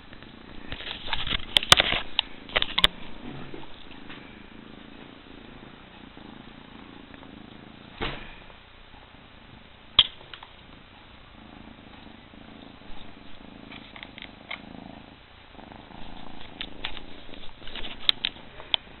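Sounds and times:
rustling: 0.0 - 6.2, 15.6 - 19.0
cat purring: 0.0 - 19.0.

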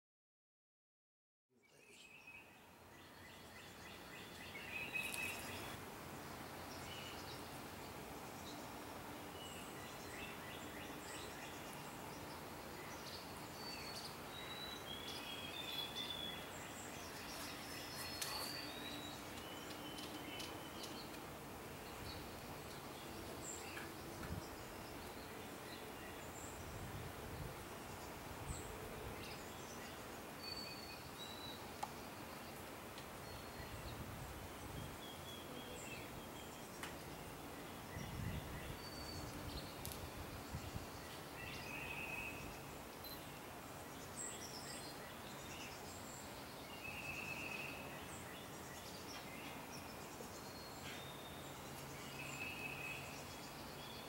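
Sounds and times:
distant songbirds chirping: 1.5 - 54.0
small birds whistling: 3.4 - 5.8, 12.8 - 21.2.

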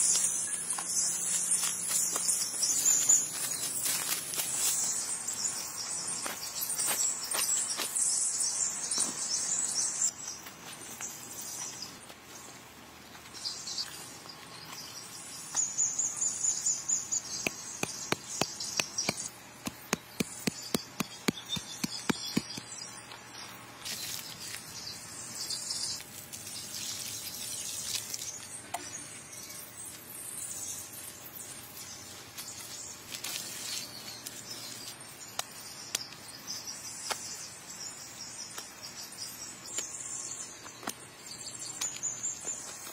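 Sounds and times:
bird chirps: 14.6 - 23.4.

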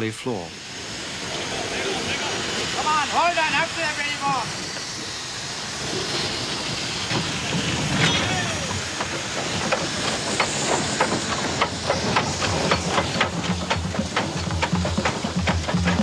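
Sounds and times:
steam locomotive hissing: 0.0 - 16.0
metallic clanks of wheels: 7.1 - 16.0.

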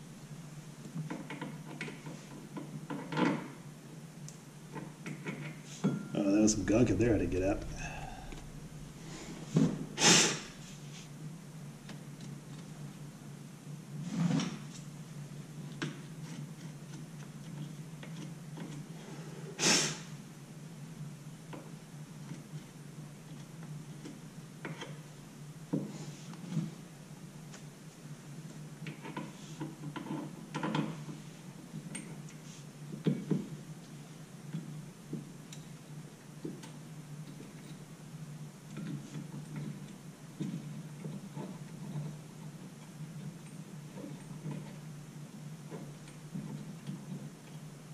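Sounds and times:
steady low hum: 5.9 - 13.6
sharp breaths through nose: 7.8 - 11.1, 19.6 - 20.1.

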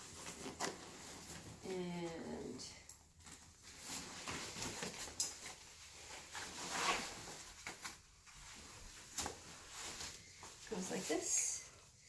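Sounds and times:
backpack fabric and straps rustling: 0.0 - 2.4, 3.2 - 11.6.

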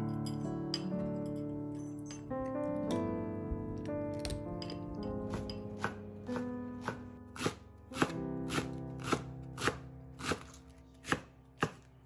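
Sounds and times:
soft background music: 0.0 - 12.0
knife chopping on wooden board: 5.3 - 11.9.

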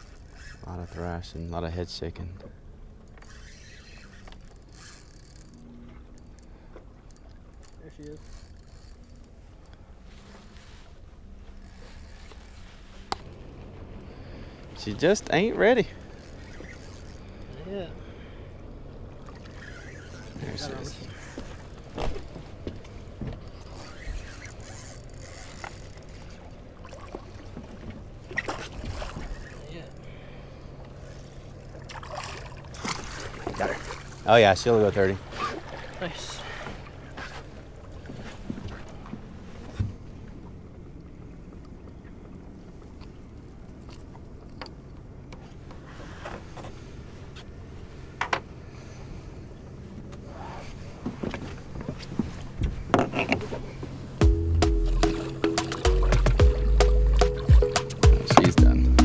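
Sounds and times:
boat motor humming: 0.0 - 59.0
fish splashing in water: 31.8 - 34.2.

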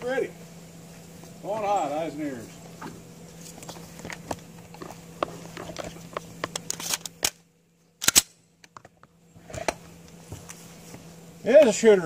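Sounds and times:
pistol clicks and scrapes: 5.6 - 7.4, 8.0 - 8.8.

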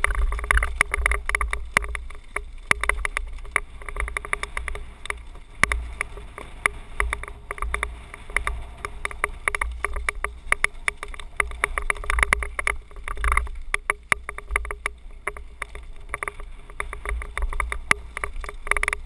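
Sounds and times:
mountain bike rattling: 0.0 - 19.0
wind rumble on microphone: 0.0 - 19.0.

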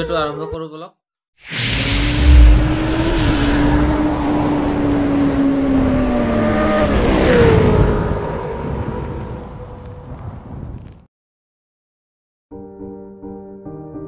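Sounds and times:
engine whine: 1.5 - 9.9
wind rumble on microphone: 1.8 - 11.1.

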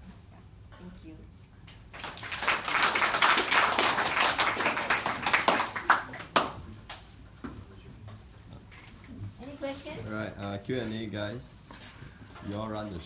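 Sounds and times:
students applauding: 1.9 - 6.6.

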